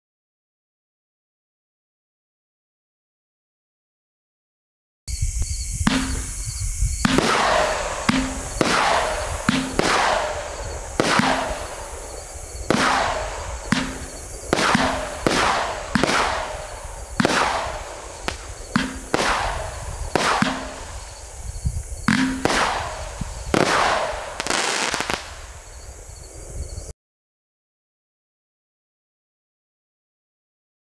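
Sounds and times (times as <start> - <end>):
firework shells bursting: 5.2 - 25.8.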